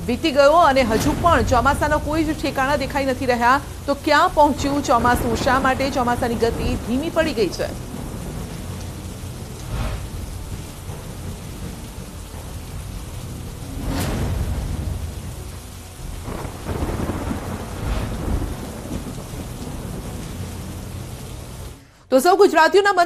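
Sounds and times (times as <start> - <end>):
rolling thunder: 0.0 - 21.8
heavy rain falling: 0.0 - 22.0.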